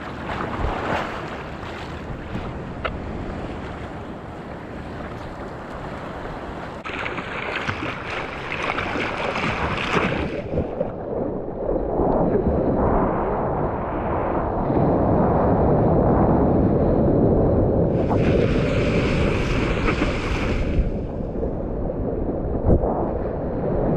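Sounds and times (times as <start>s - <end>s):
wind buffeting microphone: 0.0s - 6.9s, 7.6s - 23.9s
water sloshing and splashing: 0.0s - 11.8s, 18.0s - 21.2s
low rumble: 10.5s - 20.0s, 20.8s - 23.9s.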